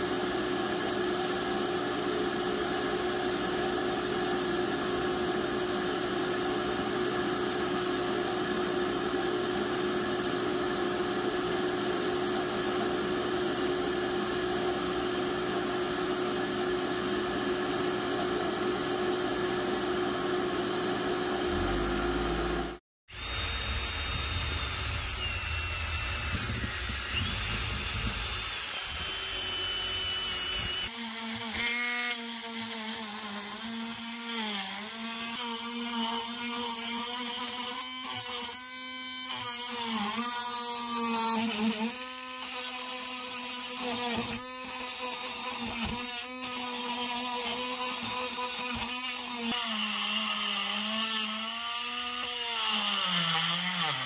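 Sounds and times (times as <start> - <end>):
drill spinning cup brush on metal: 0.0 - 54.0
cabinet hum: 13.8 - 30.8
rotary tool buzzing on metal: 21.2 - 54.0.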